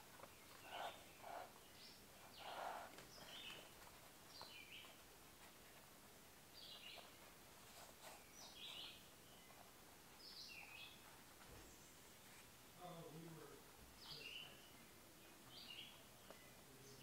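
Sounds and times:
faint bird chirps: 0:00.2 - 0:05.0, 0:14.0 - 0:17.0.

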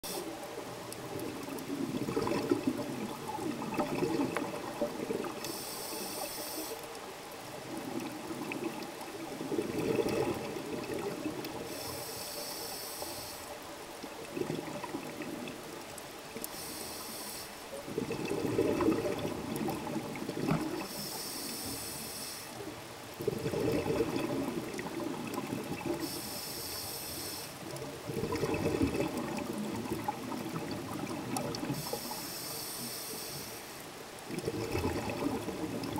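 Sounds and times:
bubbling exhaled air: 0:01.0 - 0:06.1, 0:07.8 - 0:12.0, 0:14.2 - 0:15.6, 0:17.8 - 0:21.6, 0:23.2 - 0:26.8, 0:28.0 - 0:33.0, 0:34.3 - 0:35.9
regulator hissing inhalations: 0:05.4 - 0:06.8, 0:11.7 - 0:13.6, 0:16.5 - 0:17.6, 0:20.8 - 0:22.6, 0:26.0 - 0:27.6, 0:31.8 - 0:33.8.

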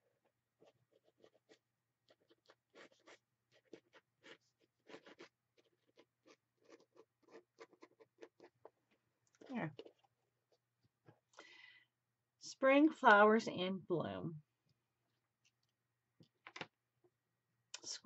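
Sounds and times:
pen nib scratching paper: 0:00.6 - 0:08.7.

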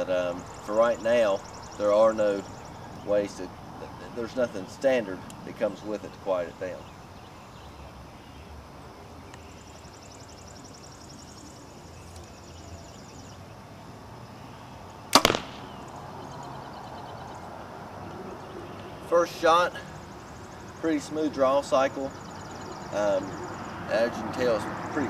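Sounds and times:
arrow striking target: 0:15.1 - 0:15.8
bow string crack: 0:15.1 - 0:15.9.

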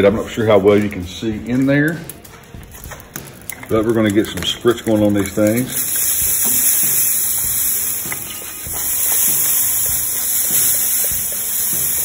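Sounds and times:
liquid spraying hiss: 0:05.4 - 0:12.0.

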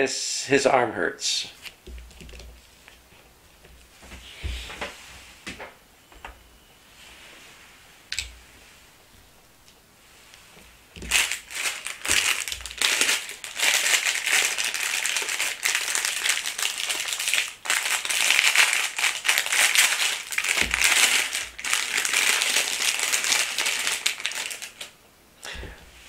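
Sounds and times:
wrapper crinkling: 0:10.9 - 0:25.0.

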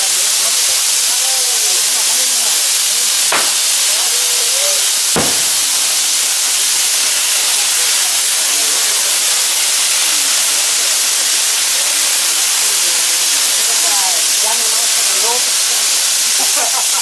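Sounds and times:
fireworks spraying with hiss: 0:00.0 - 0:17.0
sharp crack: 0:03.3 - 0:04.4, 0:05.1 - 0:06.2.

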